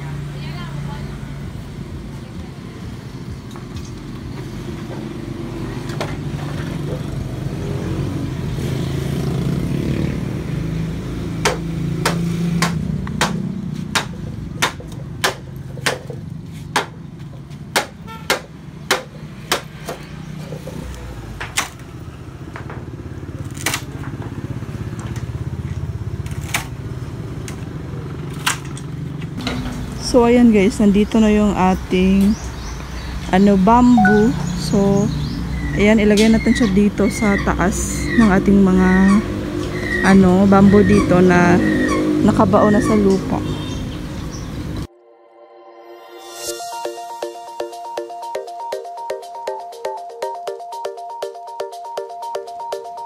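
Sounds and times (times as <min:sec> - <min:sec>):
hum of motor traffic: 0:00.0 - 0:44.9
sharp knocks: 0:11.4 - 0:17.0, 0:17.7 - 0:20.1.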